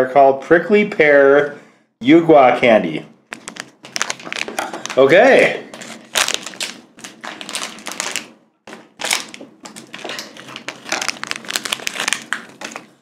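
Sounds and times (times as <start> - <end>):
plastic bag crinkling: 3.3 - 13.0.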